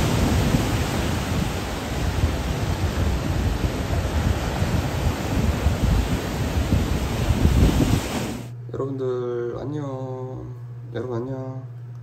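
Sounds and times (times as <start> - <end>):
surf breaking over rocks: 0.0 - 8.5.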